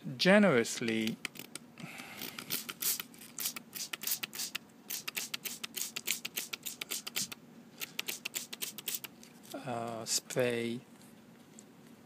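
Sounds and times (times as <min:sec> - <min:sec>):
spray bottle spritzes: 0:02.2 - 0:09.1.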